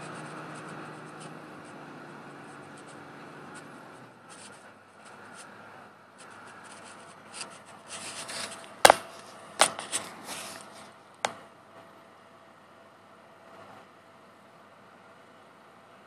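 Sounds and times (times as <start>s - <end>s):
sharp knocks: 8.8s - 9.8s.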